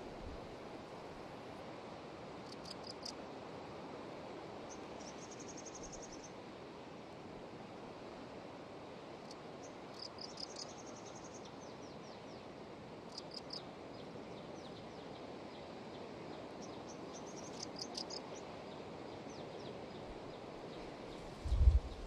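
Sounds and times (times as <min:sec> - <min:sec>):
high insect chirping: 0:02.4 - 0:03.2, 0:09.2 - 0:11.4, 0:13.1 - 0:13.6, 0:17.2 - 0:18.4.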